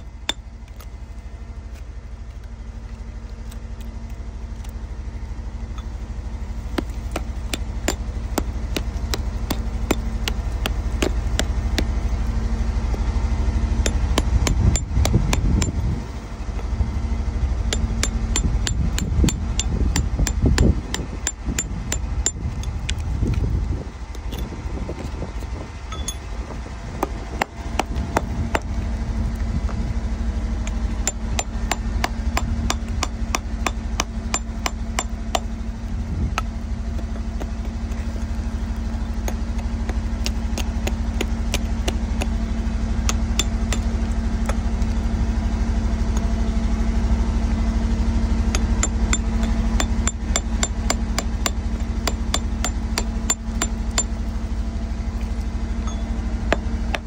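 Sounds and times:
steady low hum: 0.0s - 57.0s
chisel tapping on rock: 40.2s - 42.4s, 48.5s - 54.1s.

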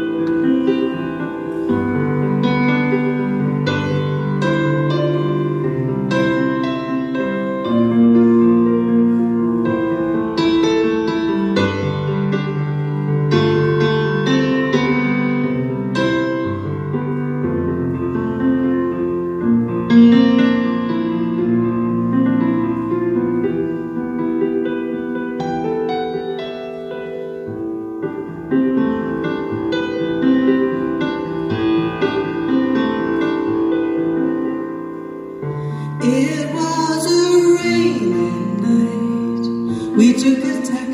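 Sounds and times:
piano playing slow chords: 0.0s - 40.9s.

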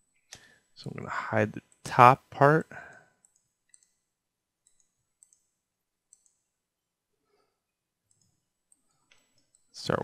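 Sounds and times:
computer mouse clicks: 3.2s - 4.0s, 4.6s - 6.5s, 8.1s - 9.7s.

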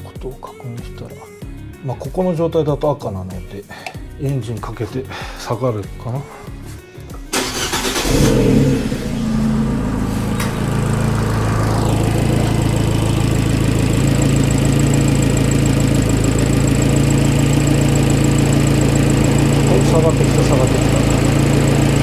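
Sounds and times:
car engine starting and idling: 7.2s - 22.0s.

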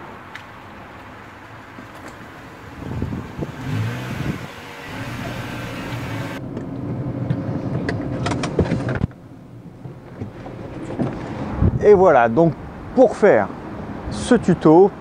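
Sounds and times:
car engine running slowly: 1.3s - 11.3s.

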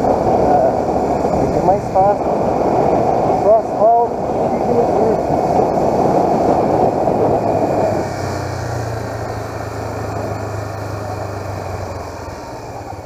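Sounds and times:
wind rushing: 0.0s - 13.0s.

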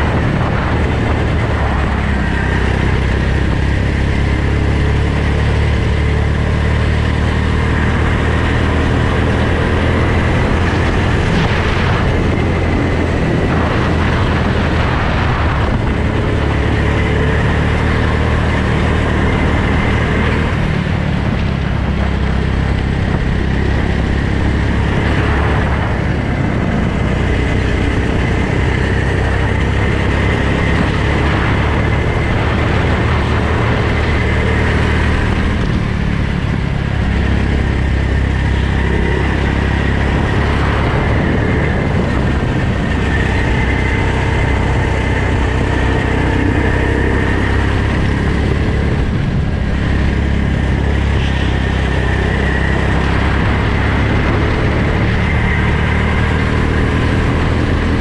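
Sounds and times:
go-kart engine running: 0.0s - 58.0s.

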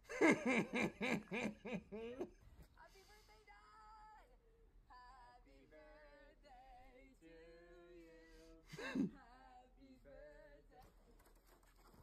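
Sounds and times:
woman singing: 3.2s - 10.9s.

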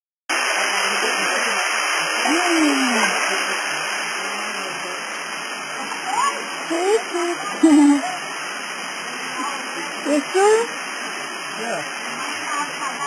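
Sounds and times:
waterfall rushing: 0.3s - 13.0s.

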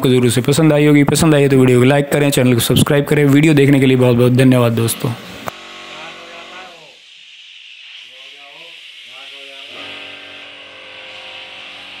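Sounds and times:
air hissing: 4.4s - 12.0s
air compressor motor: 4.8s - 12.0s.

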